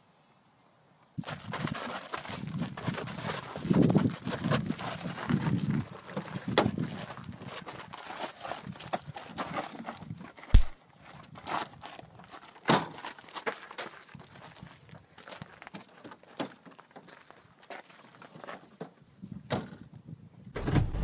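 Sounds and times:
feet scraping on gravel: 1.2s - 18.7s
car door slamming: 20.6s - 21.0s.

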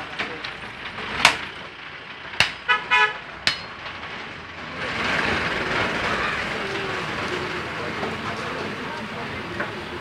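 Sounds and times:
street and market noise: 0.0s - 10.0s
cleaver chopping meat on wood: 2.4s - 2.6s
vehicle horn toots: 2.7s - 3.2s.

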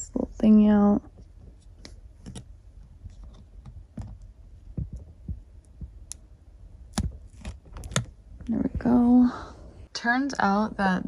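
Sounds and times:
fingernails clicking on plastic: 6.9s - 8.1s.

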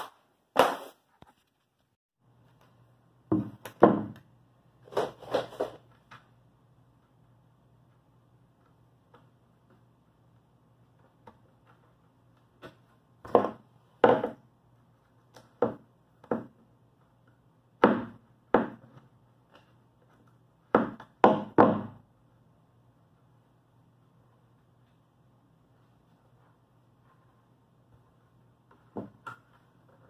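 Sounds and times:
sharp wooden knocks on plywood: 3.3s - 4.2s, 17.8s - 18.9s, 20.7s - 22.0s.

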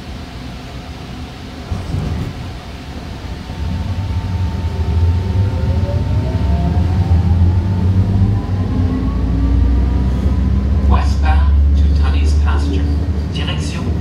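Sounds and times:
train low rumble: 0.0s - 14.0s
traction motor whine: 1.8s - 10.8s.

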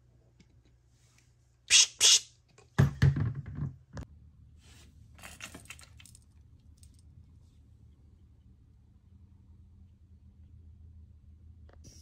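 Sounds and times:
compressed air hissing: 1.7s - 2.3s.

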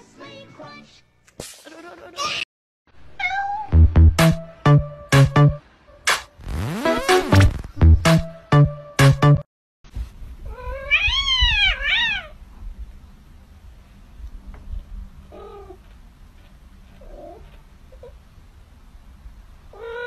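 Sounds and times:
cat meowing: 3.1s - 3.7s, 10.5s - 12.4s, 19.7s - 20.0s.

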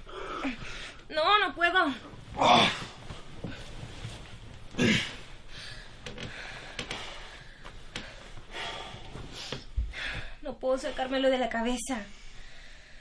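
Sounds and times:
small movements: 0.3s - 10.4s
person breathing: 4.8s - 11.1s, 12.1s - 13.0s.

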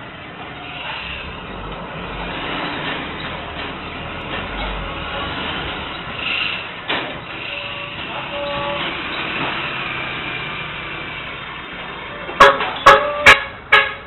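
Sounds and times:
street and vehicle noise: 0.0s - 14.0s
car horn toots: 7.4s - 8.9s, 12.2s - 14.0s.

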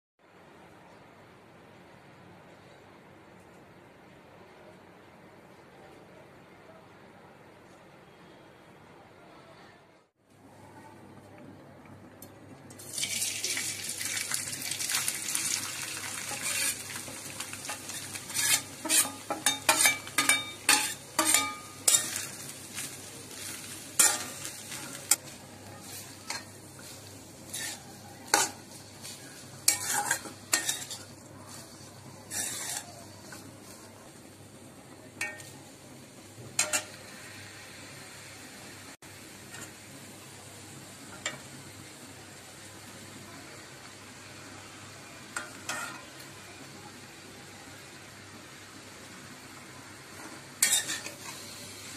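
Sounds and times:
chicken sizzling in hot oil: 12.7s - 51.9s
spatula scraping pan: 16.1s - 25.2s, 25.8s - 33.9s, 45.4s - 46.2s, 50.2s - 51.6s
spatula clacking against wok: 17.6s - 22.3s.

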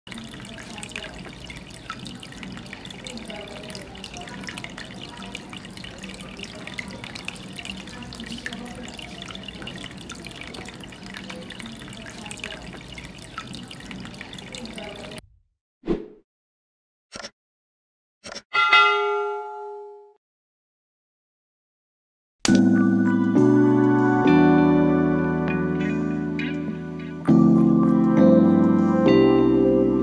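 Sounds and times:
fountain water trickling: 0.1s - 15.2s
water drips and plinks: 0.1s - 15.2s, 22.5s - 22.8s, 25.4s - 28.9s
water splashing into basins: 0.1s - 15.2s, 22.5s - 22.7s.

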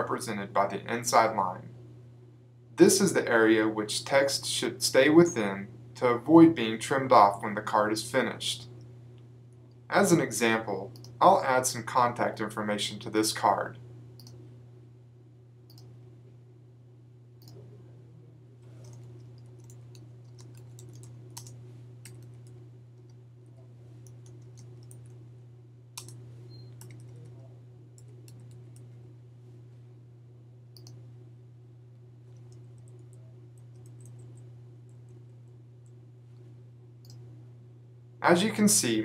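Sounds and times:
low electrical hum: 0.0s - 39.0s
keyboard and mouse clicks: 18.7s - 23.2s, 26.0s - 27.3s.

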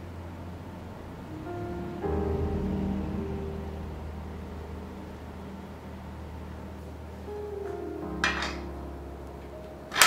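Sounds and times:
steady low hum: 0.0s - 10.0s
sustained instrumental chord: 0.0s - 10.0s.

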